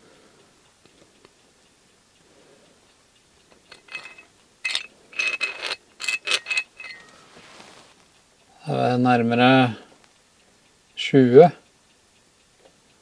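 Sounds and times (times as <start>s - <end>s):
metal clicks and scrapes: 3.5s - 7.7s.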